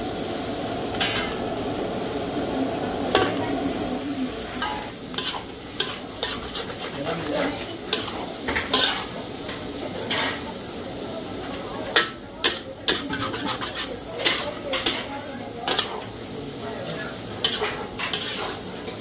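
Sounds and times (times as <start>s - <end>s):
food sizzling in a pan: 0.0s - 19.0s
utensil scraping and clinking pan: 12.5s - 15.1s, 17.4s - 19.0s.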